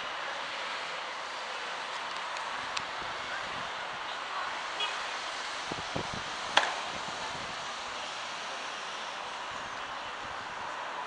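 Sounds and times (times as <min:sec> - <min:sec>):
wind thumps on microphone: 0:05.7 - 0:07.6.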